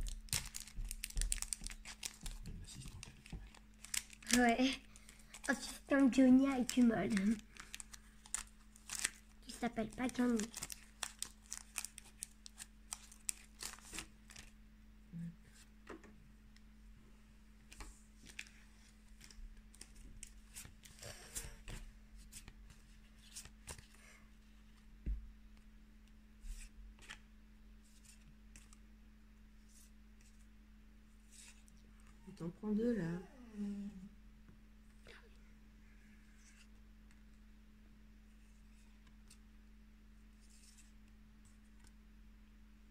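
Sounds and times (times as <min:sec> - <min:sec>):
foil pack crinkling and tearing: 0:00.0 - 0:14.5.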